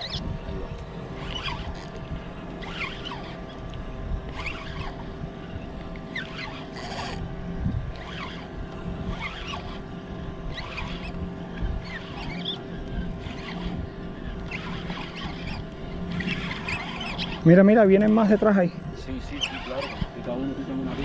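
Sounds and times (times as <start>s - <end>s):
short high squeaks: 0.0s - 0.3s, 1.2s - 3.7s, 4.3s - 5.1s, 6.1s - 7.2s, 8.0s - 8.5s, 9.1s - 9.9s, 10.5s - 18.5s, 19.1s - 21.0s
fishing reel cranking: 0.0s - 7.3s, 7.9s - 21.0s
steady hum: 0.0s - 21.0s
wind buffeting microphone: 0.0s - 21.0s.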